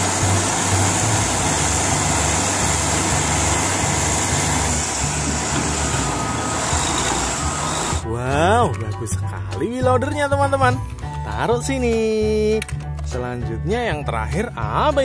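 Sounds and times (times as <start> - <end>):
heavy diesel engines running: 0.0 - 8.1.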